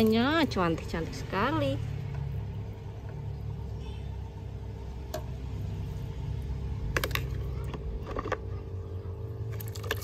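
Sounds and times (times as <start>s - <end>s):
aquarium air pump humming: 0.0s - 10.0s
net splashing in bucket of water: 9.5s - 10.0s.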